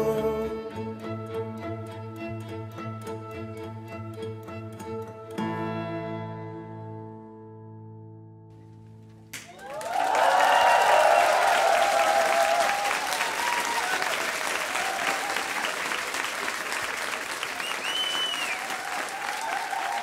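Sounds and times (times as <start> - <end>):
audience clapping and cheering: 9.3 - 20.0
whoops: 9.4 - 16.0, 17.5 - 20.0
short high whistle: 17.6 - 18.8.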